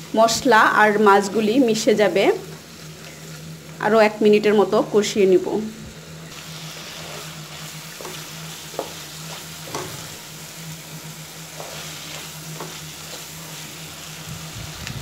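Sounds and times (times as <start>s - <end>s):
prawns sizzling in a wok: 0.0s - 15.0s
spatula scraping a pan: 6.4s - 10.3s, 11.3s - 13.9s.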